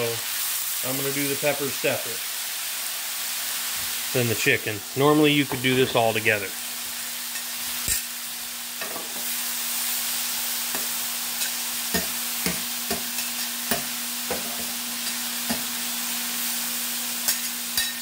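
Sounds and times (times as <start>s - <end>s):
chicken sizzling on grill: 0.0s - 18.0s.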